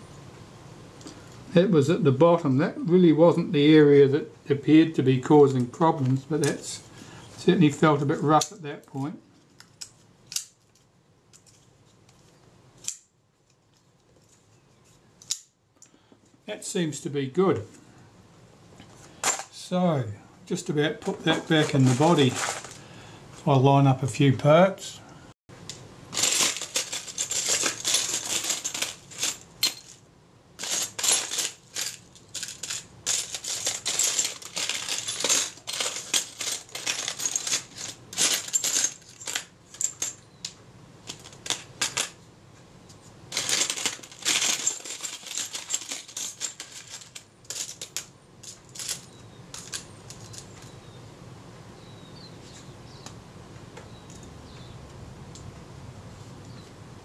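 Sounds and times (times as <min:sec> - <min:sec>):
small metal parts clinking in trays: 0:21.0 - 0:22.8, 0:26.1 - 0:30.0, 0:30.6 - 0:42.2, 0:43.3 - 0:50.8.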